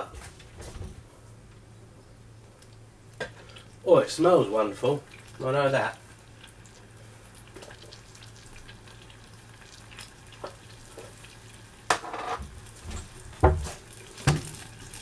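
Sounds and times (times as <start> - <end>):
steady low hum: 0.0 - 14.2
sauce sizzling in a saucepan: 3.3 - 11.9, 13.6 - 15.0.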